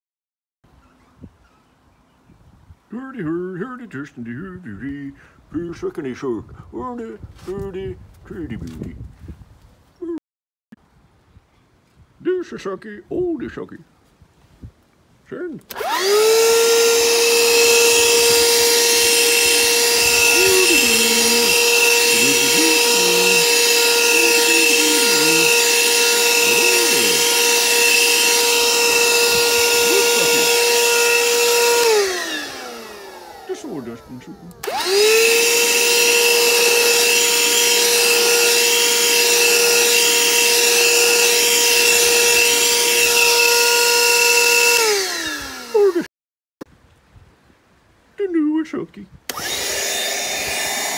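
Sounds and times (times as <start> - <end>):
handheld vacuum whine: 15.7 - 46.1, 49.3 - 50.9.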